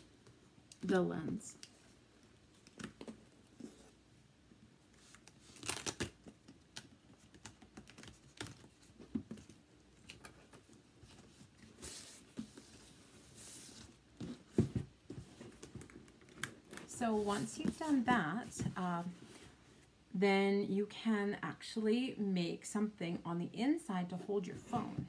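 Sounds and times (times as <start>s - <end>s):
duct tape tearing: 5.5s - 6.9s.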